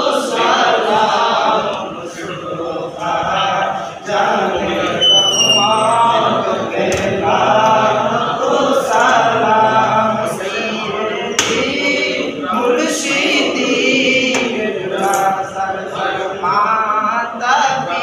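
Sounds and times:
men singing in unison: 0:00.0 - 0:18.0.

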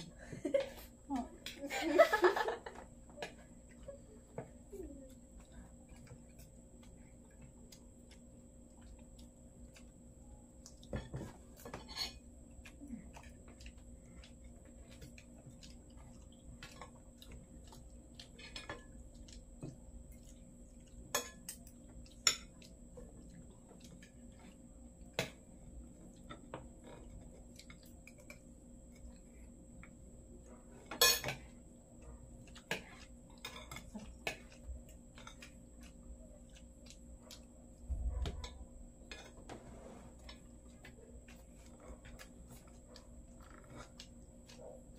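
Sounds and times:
cutlery clinking on plates: 0:30.9 - 0:31.4.

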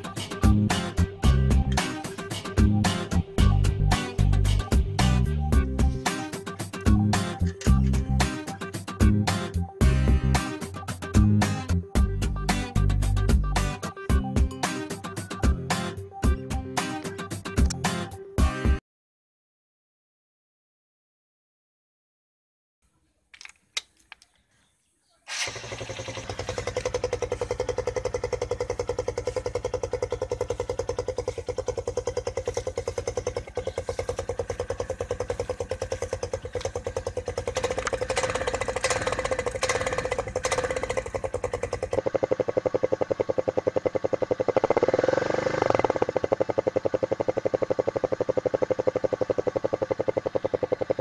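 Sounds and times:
motorcycle engine idling and revving: 0:00.0 - 0:17.8, 0:25.3 - 0:51.0
faint clicks: 0:23.3 - 0:24.5.

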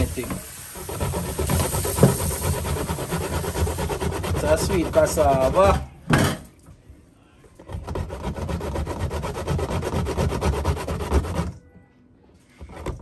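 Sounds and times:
root rasping on metal grater: 0:00.8 - 0:05.7.

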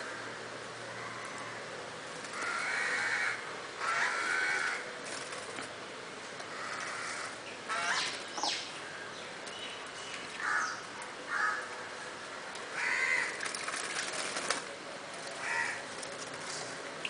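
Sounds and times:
birds giving harsh grating calls: 0:02.2 - 0:05.4, 0:06.4 - 0:08.8, 0:09.6 - 0:11.7, 0:12.7 - 0:14.6, 0:15.3 - 0:16.8
bird splashing in water: 0:13.0 - 0:16.6.

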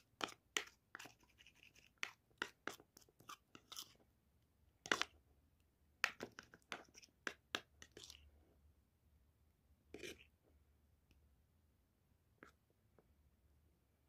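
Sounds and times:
spoon scraping ceramic bowl: 0:00.0 - 0:04.0, 0:04.8 - 0:05.1, 0:06.0 - 0:08.2, 0:09.9 - 0:10.4.

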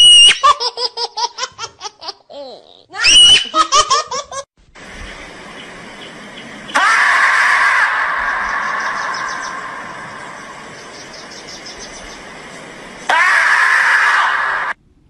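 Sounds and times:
high-pitched laughter: 0:00.2 - 0:04.5.

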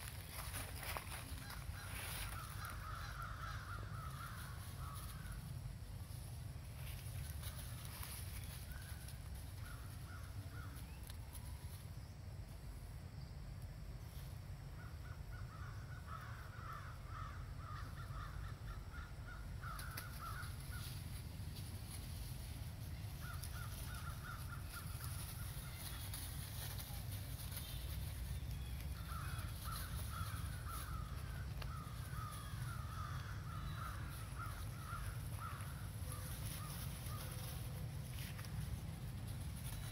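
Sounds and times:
birds chattering: 0:00.0 - 0:11.4, 0:14.8 - 0:39.9.

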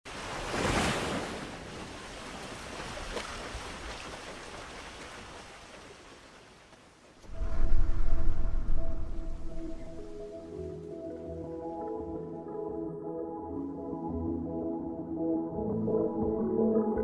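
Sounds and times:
ocean wave breaking and washing out: 0:00.1 - 0:06.5, 0:07.2 - 0:10.4.

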